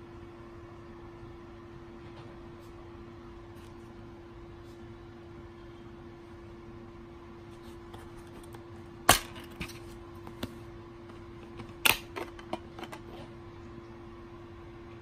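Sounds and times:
faint steady hum: 0.0s - 15.0s
disc snapping off hub: 9.1s - 9.7s
plastic case snapping open: 11.8s - 12.6s.

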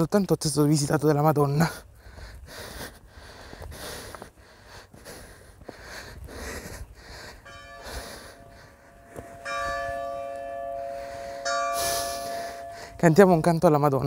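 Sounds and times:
person breathing hard: 1.6s - 9.4s, 10.8s - 13.0s
church bells ringing: 7.4s - 14.0s.

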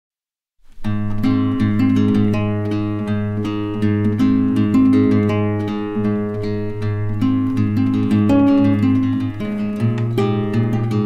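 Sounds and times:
plucked acoustic guitar: 0.7s - 11.0s.

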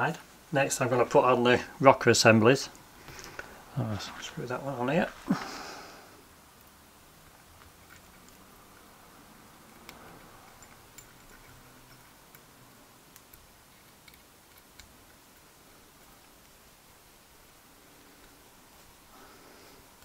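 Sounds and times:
small metallic clicks: 9.6s - 15.5s.

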